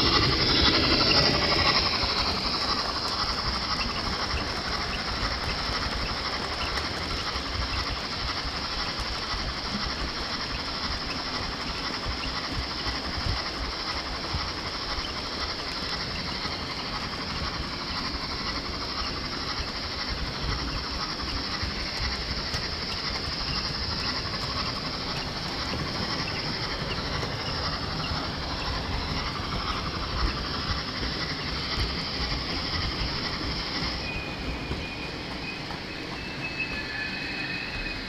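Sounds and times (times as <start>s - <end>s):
model train wheels rattling: 0.0s - 37.0s
high hiss: 0.0s - 38.0s.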